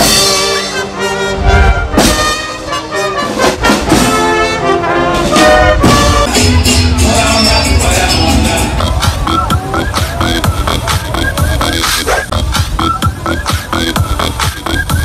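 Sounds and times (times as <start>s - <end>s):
bass and snare drum beats: 0.0s - 0.8s, 1.6s - 15.0s
brass horns holding notes: 0.0s - 10.5s.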